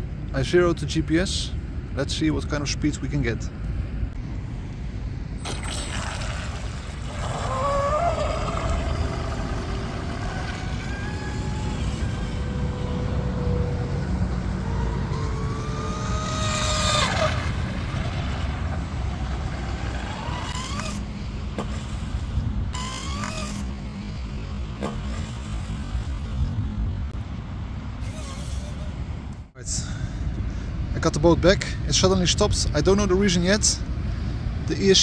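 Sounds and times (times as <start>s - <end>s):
low rumble: 1.4s - 32.8s
electric motor whine: 5.6s - 18.2s, 18.8s - 26.3s.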